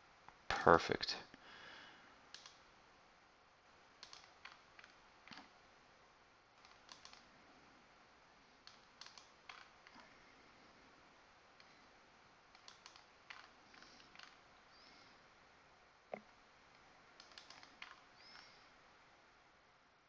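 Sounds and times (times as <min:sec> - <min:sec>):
faint computer mouse clicks: 0:02.3 - 0:02.6, 0:04.0 - 0:05.5, 0:06.6 - 0:07.2, 0:08.6 - 0:10.1, 0:12.5 - 0:14.9, 0:17.2 - 0:18.6.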